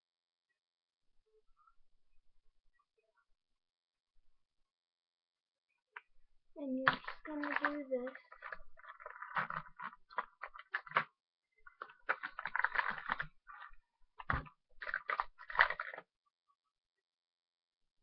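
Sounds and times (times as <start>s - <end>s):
small objects rustling and clicking: 6.7s - 16.1s.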